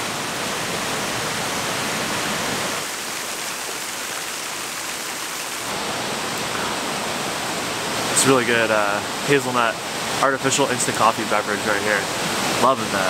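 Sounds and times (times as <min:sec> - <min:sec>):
waterfall rushing: 0:00.0 - 0:13.0.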